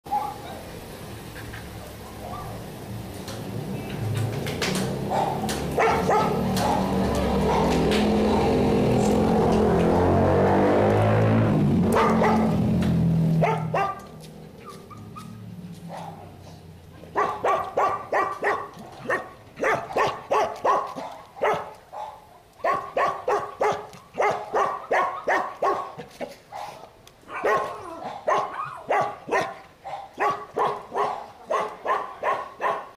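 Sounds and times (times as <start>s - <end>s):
dog barking: 0.1s - 0.6s, 2.1s - 2.6s, 5.1s - 7.9s, 11.9s - 12.6s, 13.4s - 16.4s, 17.1s - 32.9s
loud low rumble: 5.7s - 13.8s
dog whining: 27.3s - 28.9s.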